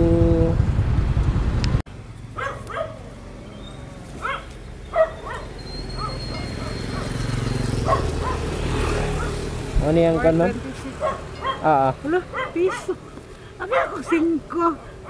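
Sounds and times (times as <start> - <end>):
motorcycle road noise: 0.0 - 15.0
dog barking: 2.4 - 3.0, 4.2 - 9.4, 11.0 - 13.0, 13.6 - 14.3.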